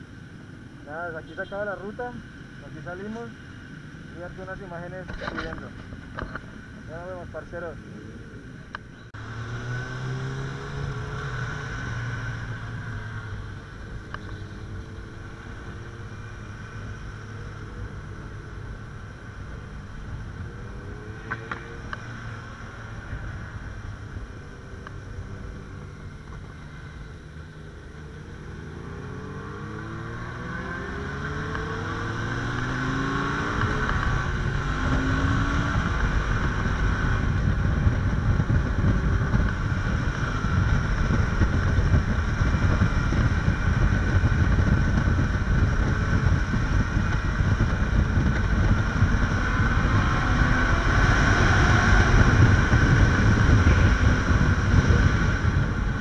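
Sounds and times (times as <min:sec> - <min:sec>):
motorcycle engine accelerating: 0:04.4 - 0:56.0
wind buffeting the microphone: 0:30.4 - 0:56.0.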